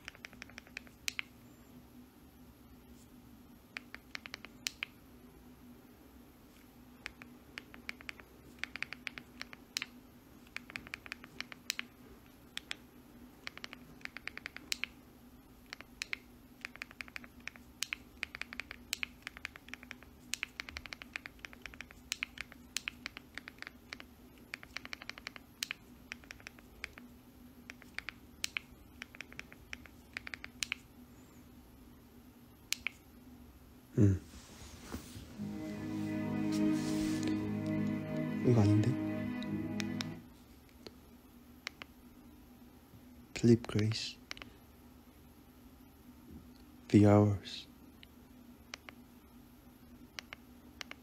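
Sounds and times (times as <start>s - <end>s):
typing clicks: 0.0s - 1.3s, 3.8s - 5.0s, 7.0s - 11.9s, 13.4s - 15.0s, 15.7s - 27.1s, 27.7s - 30.8s
faint steady hum: 0.0s - 51.0s.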